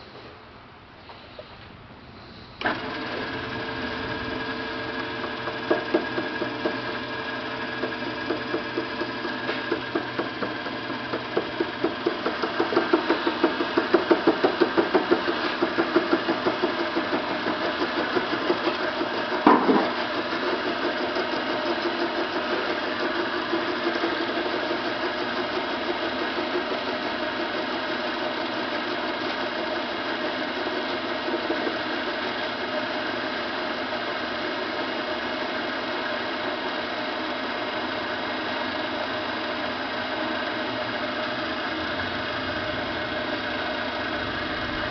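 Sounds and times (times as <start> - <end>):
rhythmic knocking of cutting tool: 2.6 - 33.5
lathe running: 2.6 - 44.9.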